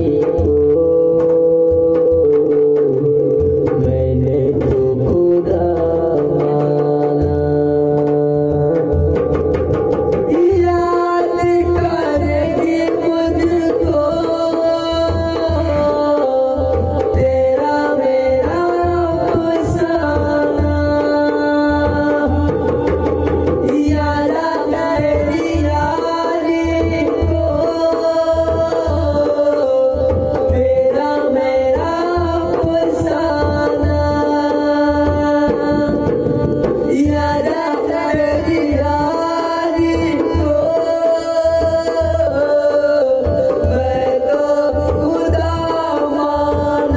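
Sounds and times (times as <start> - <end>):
man singing devotional song: 0.0 - 46.9.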